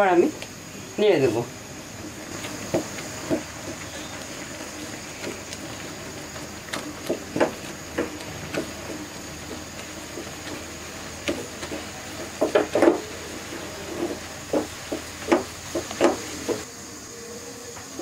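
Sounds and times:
spatula scraping a metal pan: 0:02.4 - 0:16.6.

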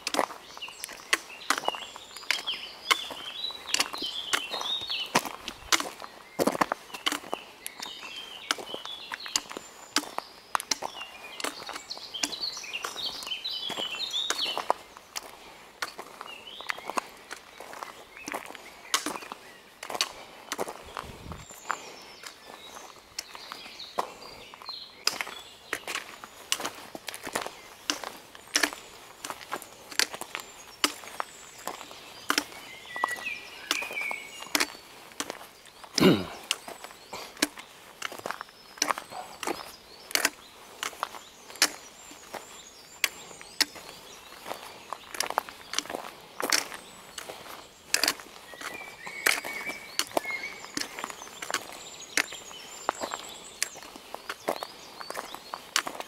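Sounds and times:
birds chirping: 0:00.0 - 0:56.0
footsteps crunching on a path: 0:00.0 - 0:56.0.

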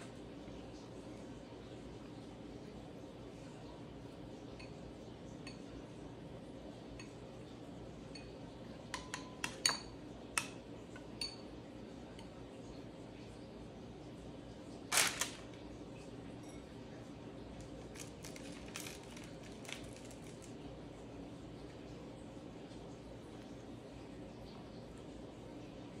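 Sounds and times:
faint room hum: 0:00.0 - 0:26.0
metal spoon clinking ceramic bowl: 0:08.1 - 0:11.5.

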